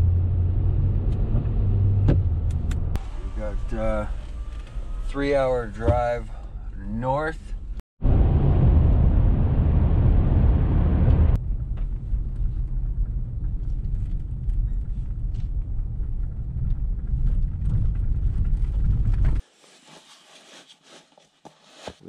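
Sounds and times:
vehicle road rumble: 0.0 - 19.4.

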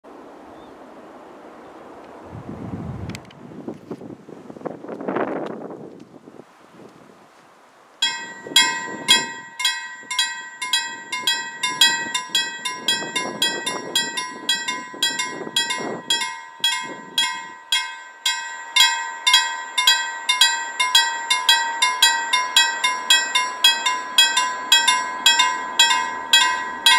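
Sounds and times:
wind buffeting microphone: 2.1 - 7.3, 8.0 - 18.0
level crossing warning bell: 8.0 - 26.9.

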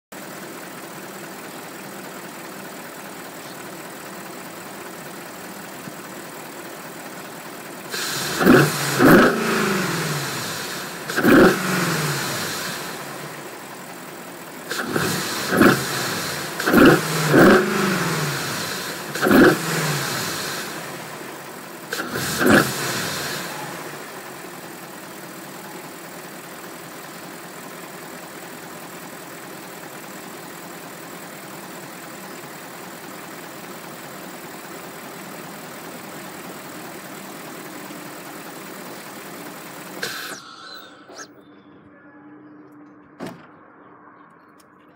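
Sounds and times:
car engine idling and revving: 0.0 - 42.0
rush of intake air: 7.9 - 9.1, 40.0 - 41.3.

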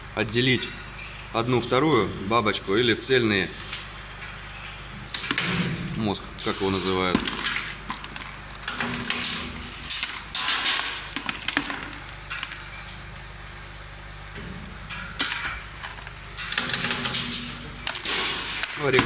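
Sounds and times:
machine motor hum: 4.8 - 19.0.

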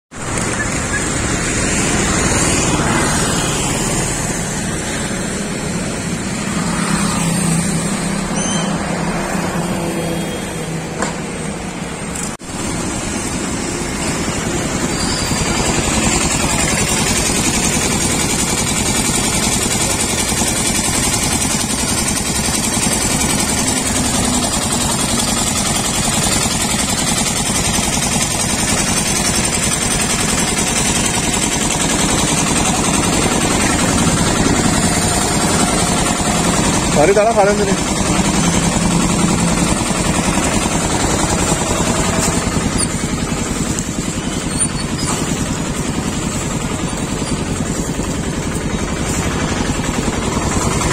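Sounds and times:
street traffic: 0.1 - 50.9
vehicle passing by: 0.2 - 17.9.

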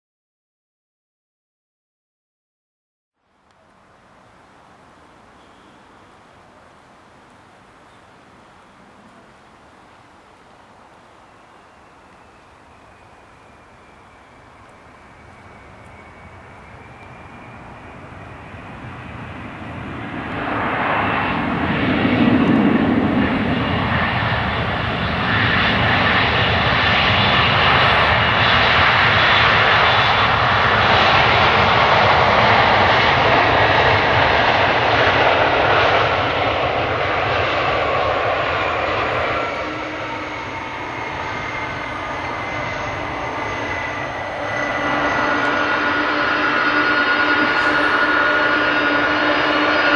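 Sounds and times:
jet engines roaring: 3.6 - 49.9.

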